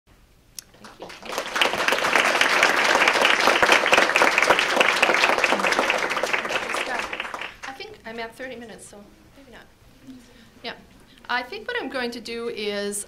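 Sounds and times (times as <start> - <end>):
audience applauding: 0.6 - 7.8.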